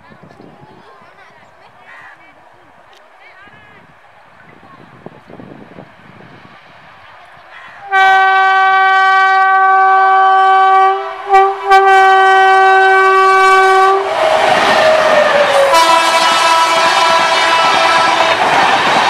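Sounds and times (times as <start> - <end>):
rush of approaching train: 0.2 - 19.0
locomotive horn blast: 7.8 - 18.8.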